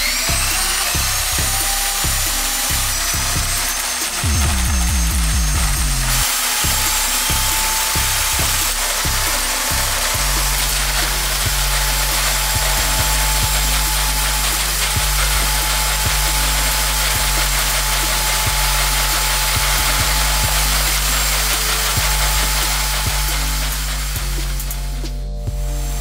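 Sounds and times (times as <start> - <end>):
background music with low notes: 0.0 - 26.0
cable rubbing through plastic pipe: 0.0 - 26.0
electric drain cleaner running: 0.0 - 26.0.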